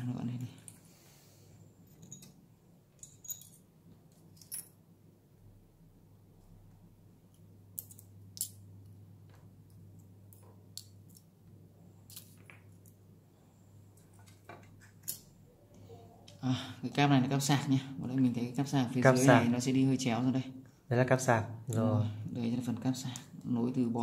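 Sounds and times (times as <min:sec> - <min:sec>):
small parts clicking and tapping: 0:01.8 - 0:04.8, 0:07.3 - 0:13.0, 0:13.9 - 0:15.3.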